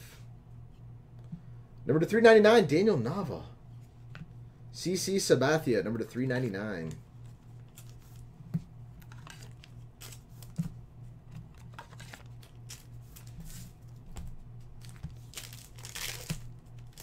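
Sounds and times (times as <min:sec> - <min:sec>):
faint low hum: 0:00.0 - 0:17.0
cards rustling and clicking: 0:06.2 - 0:17.0
foil pack crinkling: 0:11.6 - 0:14.0, 0:14.6 - 0:17.0.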